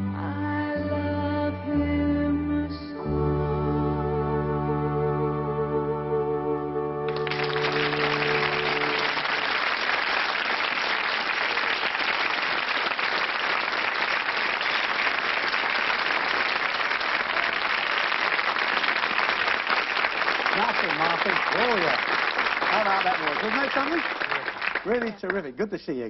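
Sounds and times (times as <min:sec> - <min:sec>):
held music chord: 0:00.0 - 0:09.5
audience applauding: 0:07.1 - 0:25.6.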